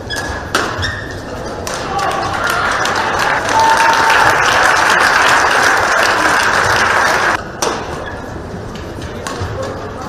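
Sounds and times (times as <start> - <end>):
crowd applauding: 2.0 - 7.4.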